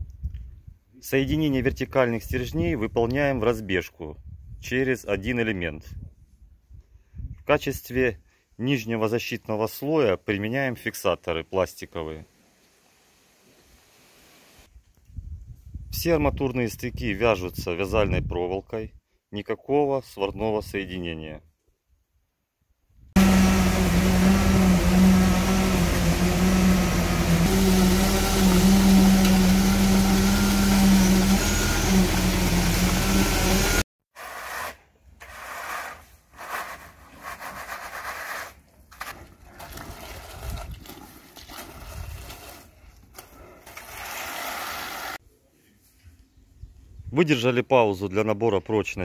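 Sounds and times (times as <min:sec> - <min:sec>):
motor humming: 0:23.2 - 0:33.8
scraping wet concrete: 0:23.2 - 0:45.2.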